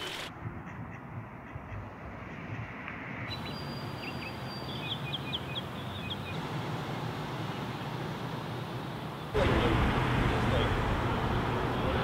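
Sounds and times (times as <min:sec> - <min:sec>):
outdoor background noise: 0:00.0 - 0:12.0
small bird chirping: 0:03.3 - 0:06.4.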